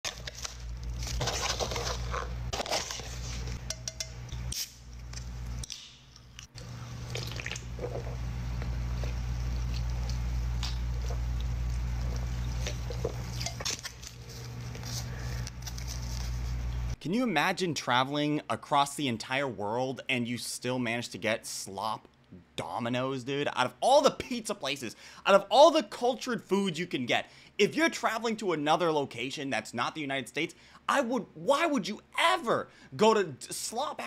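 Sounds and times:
low hum: 0.2s - 17.0s
biting and chewing pizza: 5.6s - 16.4s.

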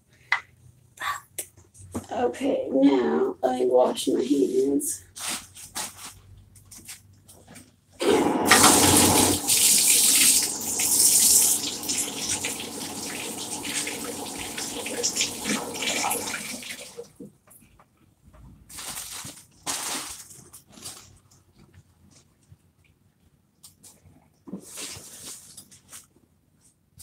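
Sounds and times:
hands being washed: 8.0s - 17.2s
tap running into sink: 8.4s - 16.9s.

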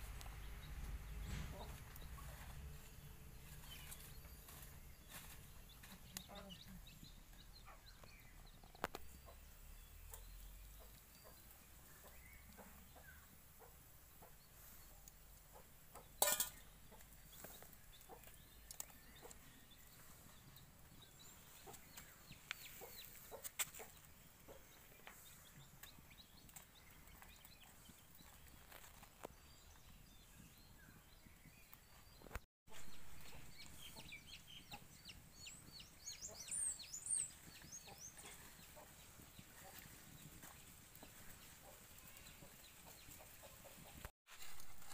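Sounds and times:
chickens clucking: 0.1s - 29.2s, 32.2s - 44.1s
metal utensil clicking on pan: 16.2s - 16.6s.

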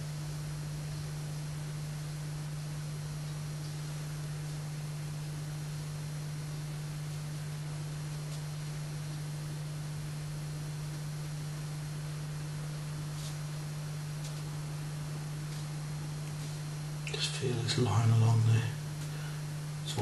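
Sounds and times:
constant hiss: 0.0s - 20.0s
low hum: 0.0s - 20.0s.

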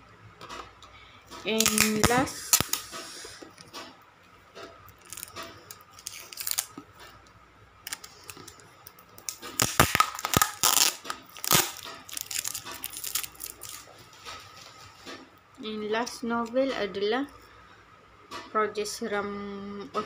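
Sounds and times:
plastic wrapping rustling: 1.4s - 3.4s, 4.9s - 7.2s, 7.9s - 15.3s.

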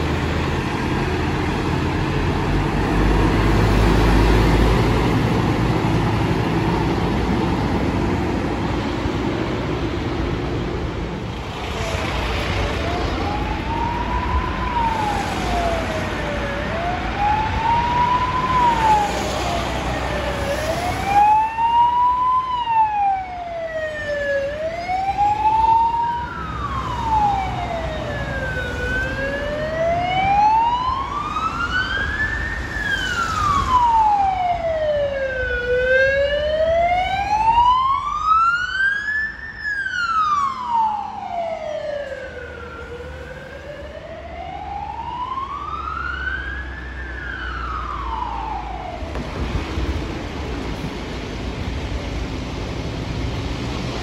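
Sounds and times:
fire engine siren wailing: 0.0s - 9.0s, 11.4s - 52.6s
passing road traffic: 0.0s - 54.0s.

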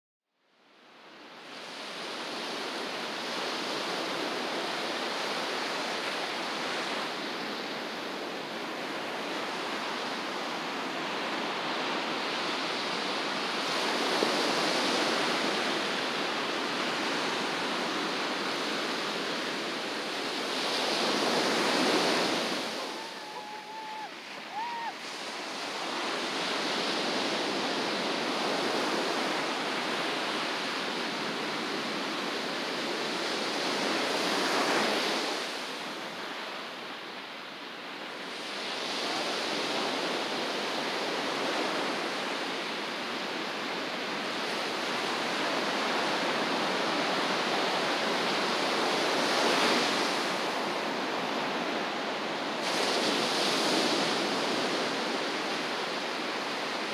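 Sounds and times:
ocean surf breaking: 1.7s - 36.4s.

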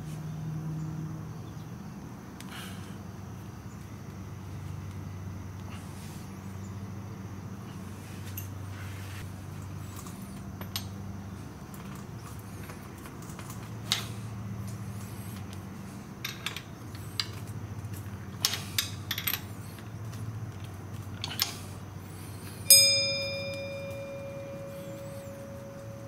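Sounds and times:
sharp metallic clang: 22.7s - 26.0s.

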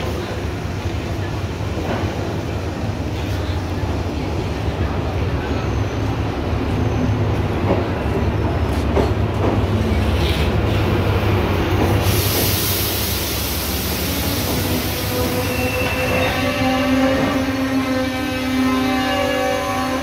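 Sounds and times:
diesel train drone: 0.0s - 20.0s
rail noise: 0.0s - 20.0s
hiss: 11.8s - 15.6s.

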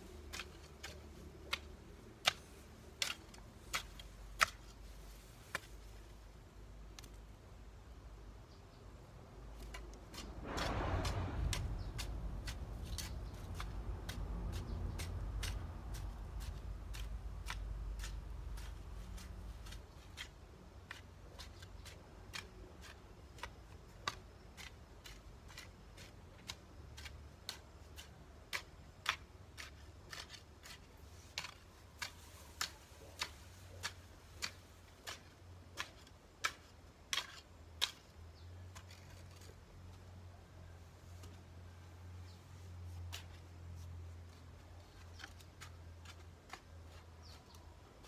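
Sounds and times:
garden hoe chopping into soil: 0.0s - 6.0s, 9.5s - 39.6s, 43.0s - 47.7s
low rumble: 10.2s - 15.8s.

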